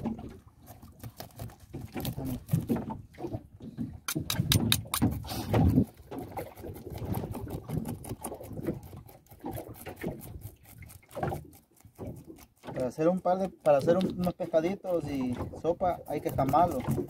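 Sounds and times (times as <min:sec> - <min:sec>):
knife scraping fish scales: 0:00.7 - 0:02.7, 0:15.9 - 0:17.0.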